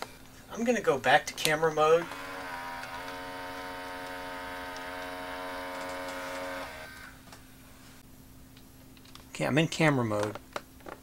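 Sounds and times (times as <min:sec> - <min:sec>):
tape mechanism whining: 0:01.4 - 0:07.5.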